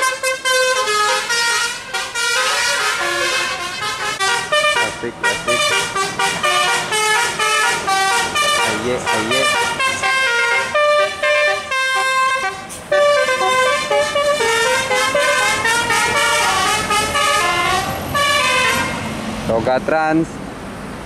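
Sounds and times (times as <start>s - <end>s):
musical air horn playing a tune: 0.0s - 19.0s.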